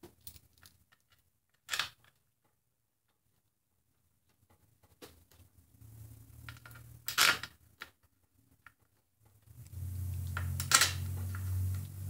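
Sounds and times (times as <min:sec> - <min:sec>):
low hum: 0:09.5 - 0:12.0.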